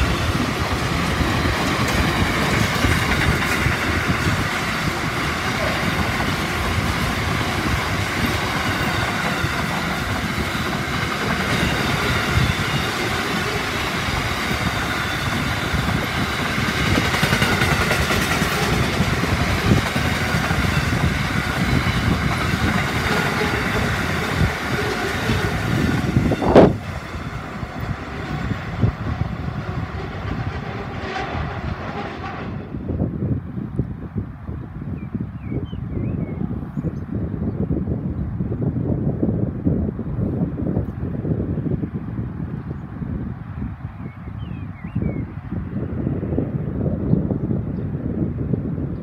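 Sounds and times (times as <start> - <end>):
train wheels rumbling on rails: 0.0 - 34.7.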